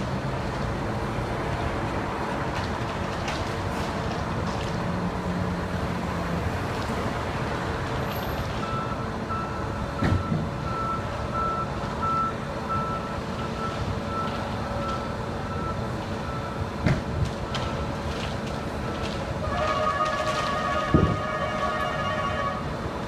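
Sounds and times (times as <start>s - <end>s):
engine and traffic rumble: 0.0s - 23.0s
reversing alarm beeping: 8.6s - 16.7s, 18.6s - 22.6s.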